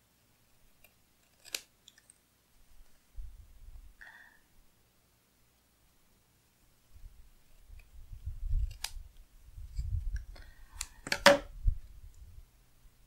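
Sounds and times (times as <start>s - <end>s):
crisp paper clicks: 0.8s - 2.1s.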